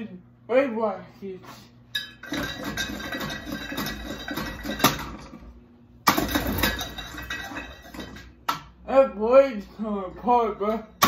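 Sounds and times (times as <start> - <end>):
fan blades clattering on hammer: 2.0 - 8.7.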